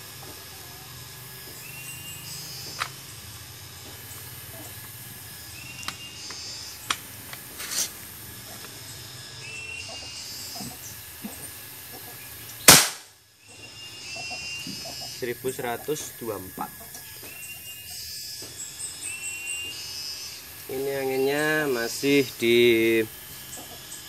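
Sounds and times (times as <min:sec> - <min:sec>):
air rifle shot: 0:12.7 - 0:13.1.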